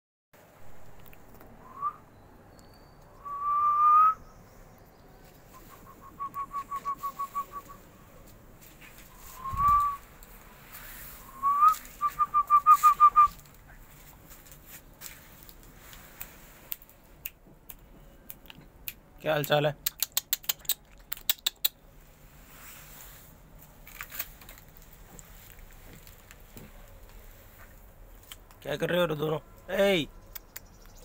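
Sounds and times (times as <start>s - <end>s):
person whistling: 1.6s - 2.0s, 3.2s - 4.2s, 5.5s - 7.8s, 9.1s - 10.0s, 11.2s - 13.4s.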